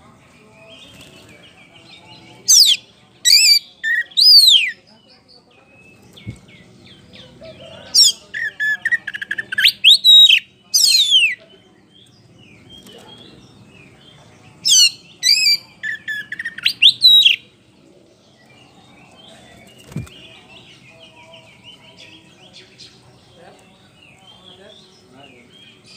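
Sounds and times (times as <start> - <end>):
songbird singing whistles and trills: 2.5 - 5.4, 7.9 - 12.1, 14.6 - 17.5.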